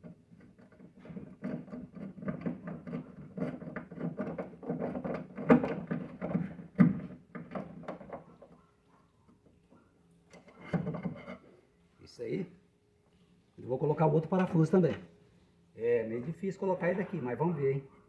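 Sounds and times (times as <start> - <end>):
screw scraping and clicking: 0.0 - 6.4.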